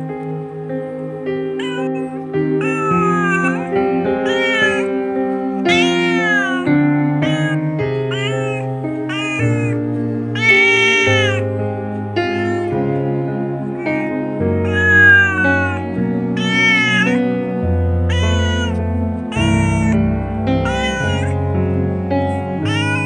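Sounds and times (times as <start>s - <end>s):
slow background music: 0.0s - 23.0s
cat meowing: 1.5s - 11.6s, 12.2s - 12.8s, 13.6s - 21.5s, 22.6s - 23.0s.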